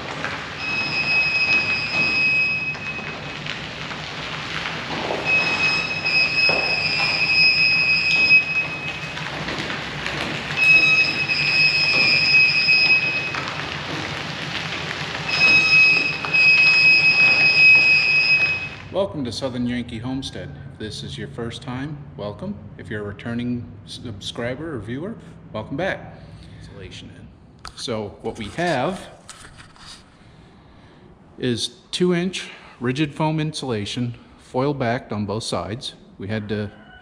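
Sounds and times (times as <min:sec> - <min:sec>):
high steady squeal: 0:05.1 - 0:09.3, 0:10.6 - 0:14.0.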